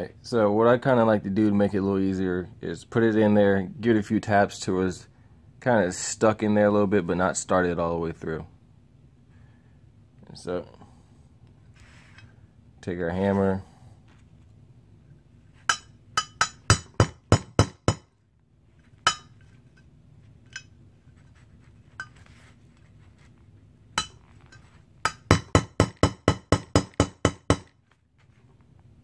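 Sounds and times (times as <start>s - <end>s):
hammer tapping metal pin: 15.7s - 18.1s, 19.0s - 19.4s, 24.0s - 24.2s, 25.0s - 27.7s.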